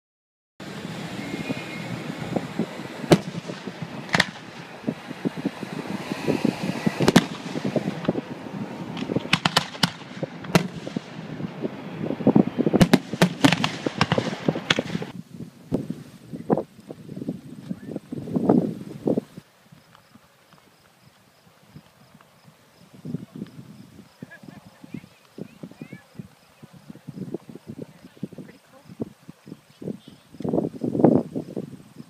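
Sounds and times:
fireworks cracking and popping: 0.6 - 16.1.

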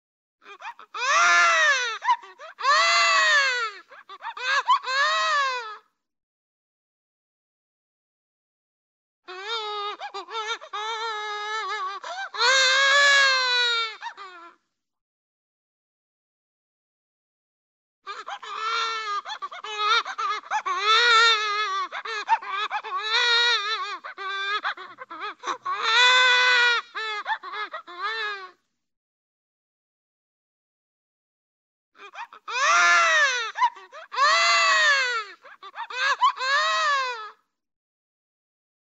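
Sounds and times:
cartoon baby crying: 0.5 - 5.8, 9.3 - 14.6, 18.1 - 28.5, 32.0 - 37.4.

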